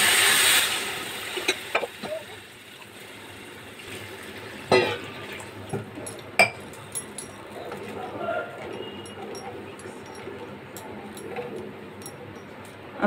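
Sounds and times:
water splashing and hissing in pan: 0.0s - 5.6s.

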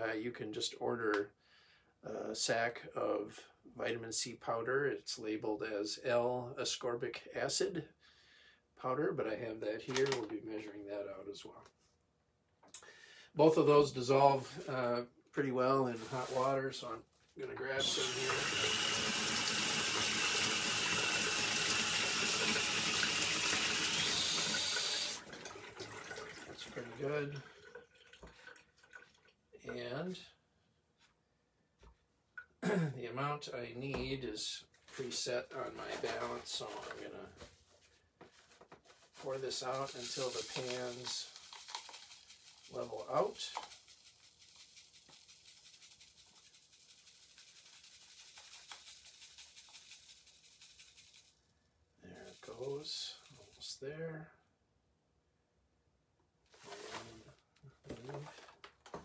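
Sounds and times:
water running into a cup: 17.6s - 29.4s, 39.8s - 45.7s.

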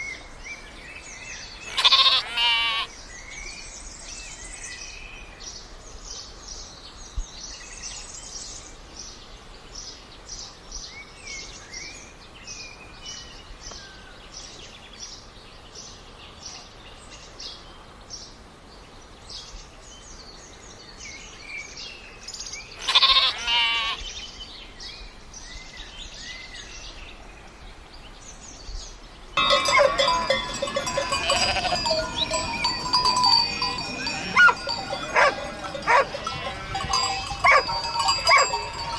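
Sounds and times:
sheep bleating: 1.7s - 2.9s, 22.8s - 24.0s, 29.4s - 38.9s
small birds chirping: 28.0s - 38.9s
bells ringing: 29.4s - 38.9s.

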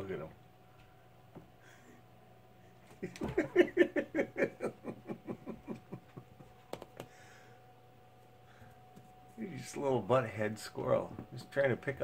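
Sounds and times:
person laughing: 2.9s - 6.6s.

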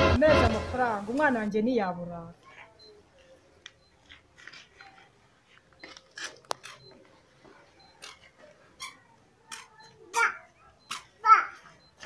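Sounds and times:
mobile phone clicks and rustles: 3.6s - 7.2s.

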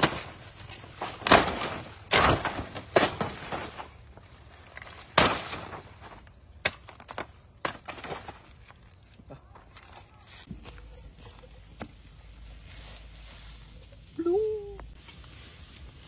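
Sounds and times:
rustle of leaves: 9.8s - 16.0s.

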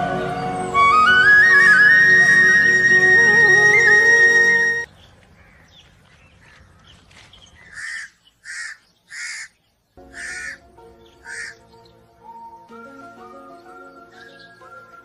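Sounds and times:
crow cawing: 5.4s - 5.7s, 7.7s - 10.6s, 11.2s - 11.6s.

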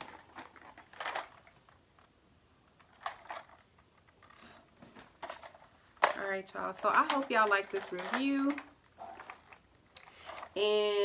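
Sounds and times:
plastic packaging rustling: 0.0s - 2.1s, 2.8s - 10.6s.

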